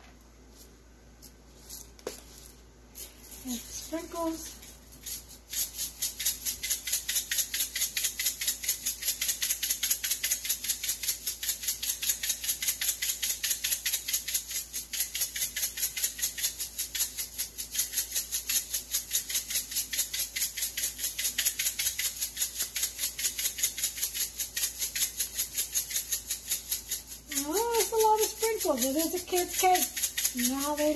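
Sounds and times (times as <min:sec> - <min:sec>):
sprinkles rattling in shaken container: 0:01.6 - 0:30.9.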